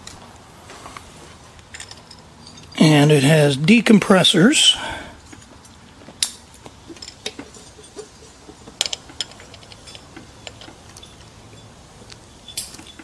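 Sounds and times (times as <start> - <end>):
small parts clicking and tapping: 5.3 - 13.0.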